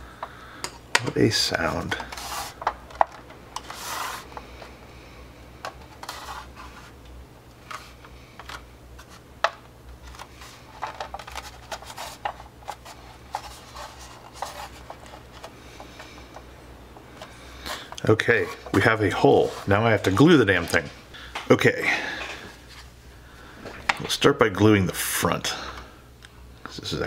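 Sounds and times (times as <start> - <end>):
plastic parts rubbing and clicking: 0.9 - 4.7, 5.6 - 7.0, 7.6 - 16.5.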